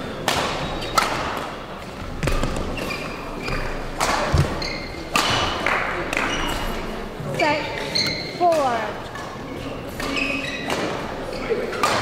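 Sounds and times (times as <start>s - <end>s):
rackets hitting shuttlecock: 0.2s - 6.6s, 9.9s - 12.0s
shoe squeaks on court floor: 2.2s - 5.1s, 6.2s - 6.8s, 7.4s - 8.4s, 9.8s - 11.7s.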